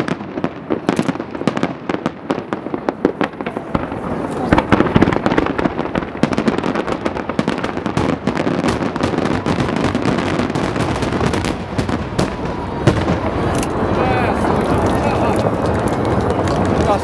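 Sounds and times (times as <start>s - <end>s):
firework bangs and crackles: 0.0s - 17.0s.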